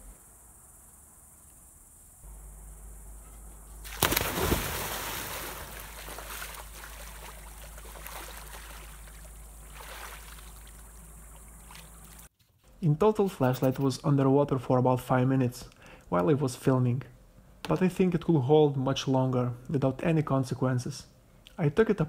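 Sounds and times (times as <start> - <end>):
loud splash into pool: 3.8 - 10.8
water sloshing and lapping: 3.8 - 12.3.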